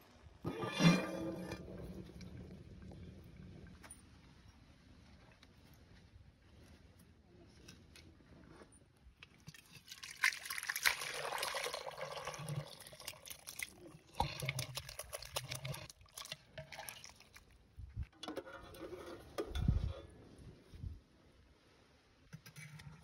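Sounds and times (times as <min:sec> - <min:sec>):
liquid pouring into metal vessel: 0:09.5 - 0:17.6.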